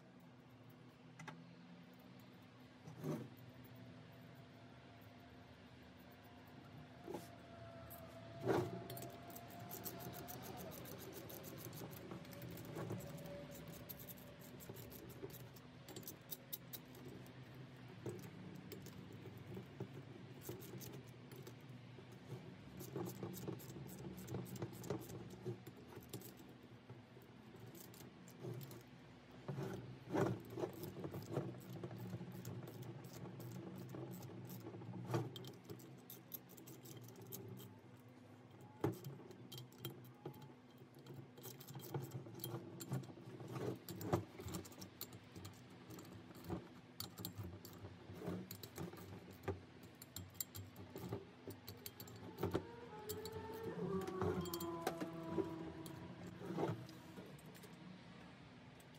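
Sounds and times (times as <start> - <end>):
metal tools clinking: 54.3 - 55.1.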